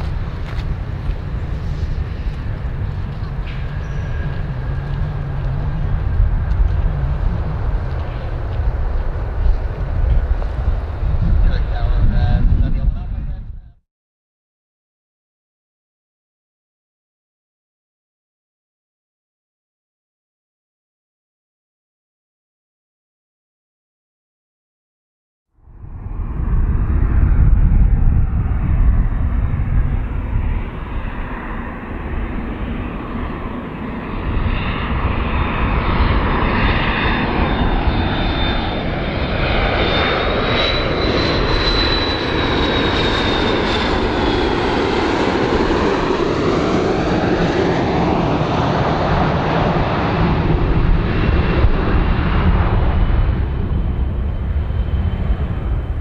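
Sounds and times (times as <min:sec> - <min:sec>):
high jet whine: 0:00.0 - 0:13.8, 0:25.6 - 0:56.0
jet engines rumbling: 0:00.0 - 0:13.8, 0:25.6 - 0:56.0.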